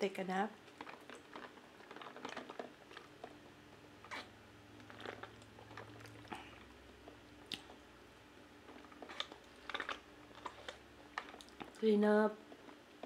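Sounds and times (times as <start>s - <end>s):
lip clicks and smacks: 0.7s - 7.8s, 8.7s - 11.8s.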